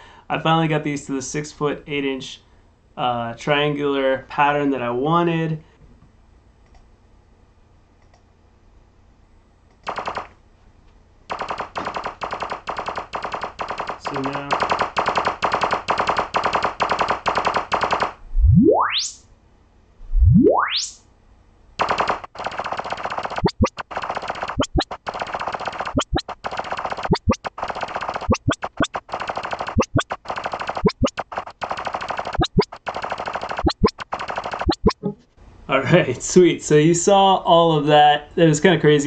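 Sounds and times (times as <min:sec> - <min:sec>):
rising sine sweeps: 0:18.3 - 0:19.2, 0:20.0 - 0:21.0
noise bursts: 0:21.8 - 0:35.2.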